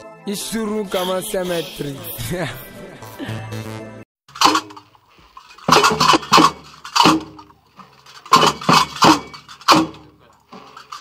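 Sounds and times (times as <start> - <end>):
sharp metallic clanks: 4.3 - 11.0.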